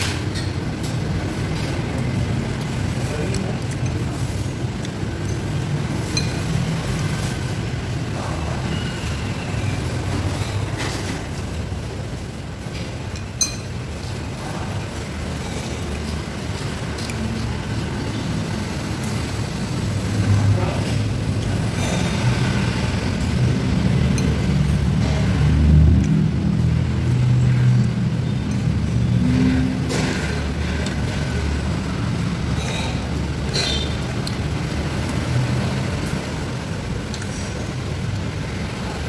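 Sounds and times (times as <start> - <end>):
cutlery clinking on dishes: 6.1 - 6.5, 13.1 - 13.8, 32.5 - 34.0.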